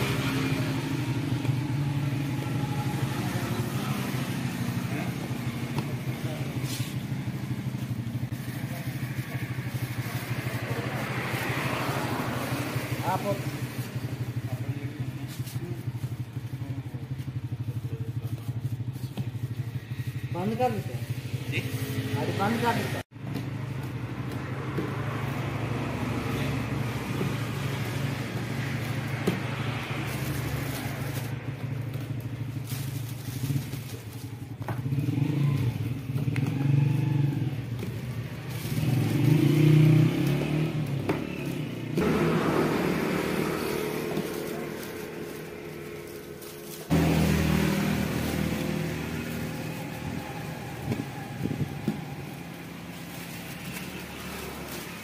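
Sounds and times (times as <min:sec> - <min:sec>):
plastic bag rustling: 0:00.0 - 0:22.1, 0:23.2 - 0:55.0
traffic engine hum: 0:00.0 - 0:55.0.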